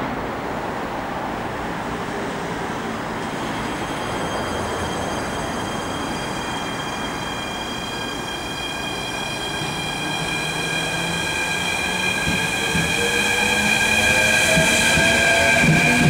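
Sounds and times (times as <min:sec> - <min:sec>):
metro train rumble: 0:00.0 - 0:16.0
high multi-tone whine: 0:03.2 - 0:16.0.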